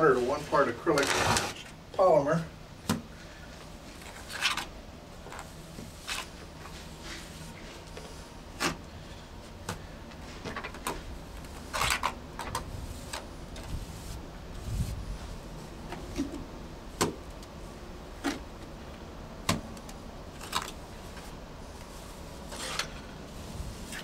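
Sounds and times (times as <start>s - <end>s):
scraping mortar onto wall: 22.5s - 23.1s.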